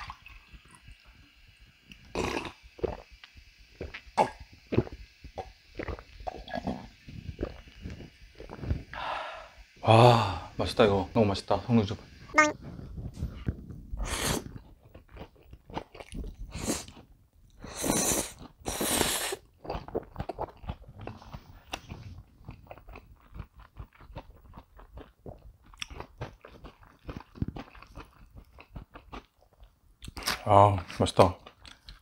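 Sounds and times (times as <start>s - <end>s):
wet chewing with small clicks: 2.8s - 4.1s, 14.4s - 17.6s, 19.4s - 32.0s
loud slurps: 14.0s - 14.7s, 16.0s - 17.0s, 17.6s - 20.4s.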